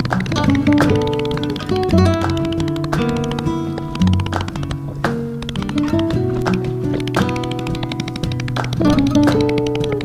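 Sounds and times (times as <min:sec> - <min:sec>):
plucked string instrument: 0:00.0 - 0:10.0.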